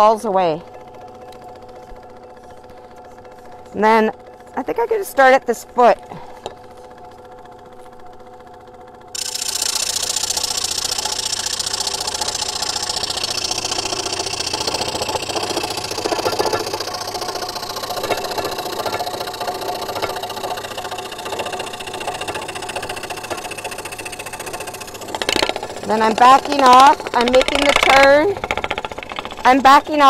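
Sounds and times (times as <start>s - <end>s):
scroll saw cutting wood: 9.1s - 30.0s.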